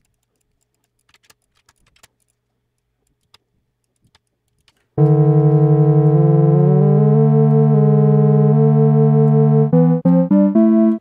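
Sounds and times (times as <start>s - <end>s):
pulsing synthesizer note: 5.0s - 11.0s.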